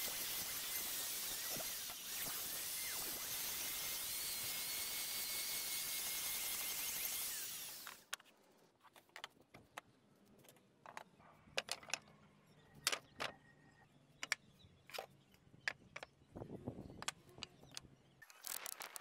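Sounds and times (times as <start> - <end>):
wood router whining: 0.0 - 8.0.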